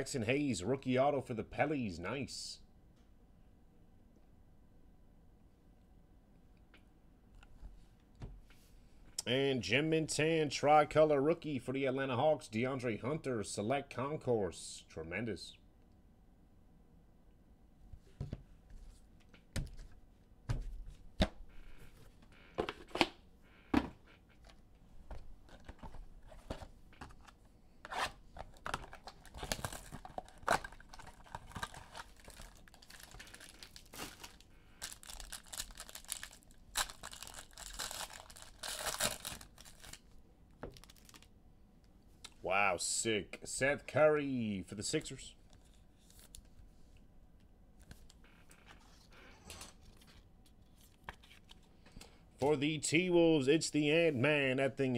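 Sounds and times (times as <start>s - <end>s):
wrapper torn open and crinkled: 28.8s - 40.1s, 40.8s - 41.3s.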